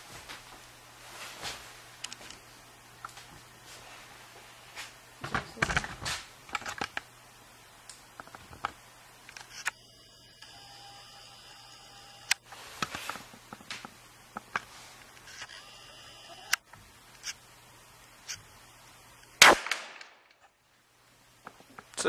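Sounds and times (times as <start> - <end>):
rifle shot crack: 19.4 - 20.3.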